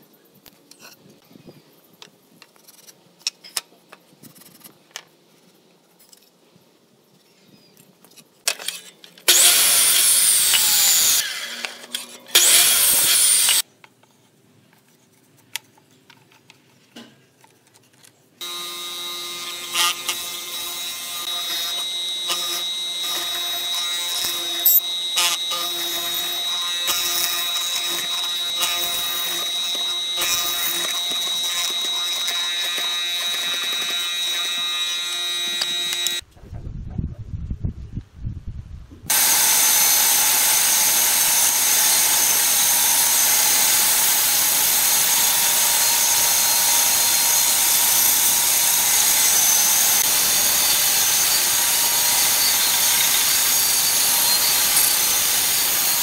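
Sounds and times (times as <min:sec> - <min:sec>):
power tool bursts: 0:08.6 - 0:13.6, 0:18.4 - 0:36.2, 0:39.1 - 0:56.0
mortiser whining: 0:18.4 - 0:36.2, 0:39.1 - 0:56.0.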